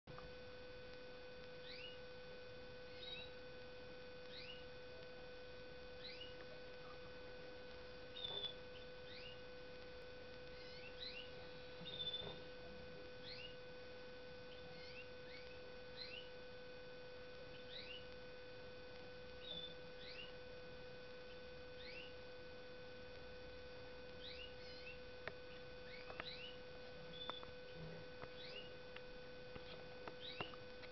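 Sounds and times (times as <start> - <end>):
electrical hum: 0.0 - 30.9
finches chirping: 1.6 - 2.0, 2.9 - 3.4, 4.2 - 4.7, 6.0 - 7.2, 8.0 - 9.5, 10.4 - 12.5, 13.2 - 13.6, 14.5 - 16.4, 17.4 - 18.2, 19.4 - 20.4, 21.2 - 22.2, 24.0 - 28.9, 29.5 - 30.9.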